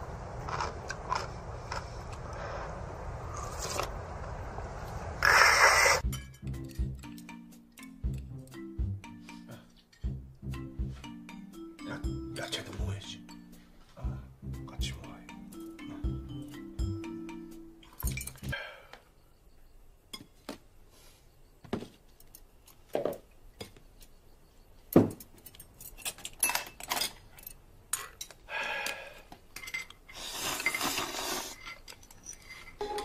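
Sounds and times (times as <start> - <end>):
slurping noodles: 0.4 - 3.9, 30.1 - 31.6.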